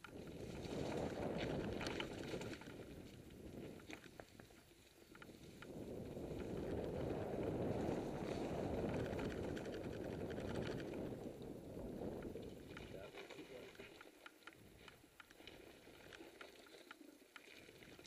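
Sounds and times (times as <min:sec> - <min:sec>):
bike tyres on dirt trail: 0:00.0 - 0:13.4
wind rushing over microphone: 0:00.2 - 0:03.8, 0:05.4 - 0:13.0
bike clicks and rattles: 0:08.8 - 0:11.1.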